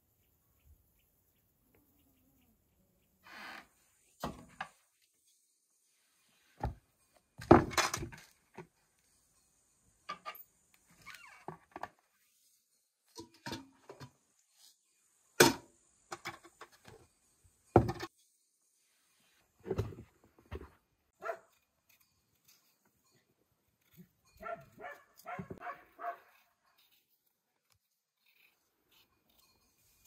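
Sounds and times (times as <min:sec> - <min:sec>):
metal bucket knocks and clunks: 0:07.4 - 0:08.3, 0:17.7 - 0:18.1.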